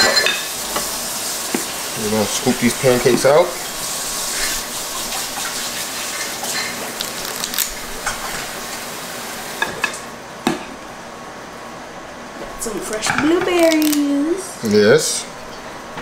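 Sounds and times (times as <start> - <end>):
butter sizzling on griddle: 0.4 - 9.6.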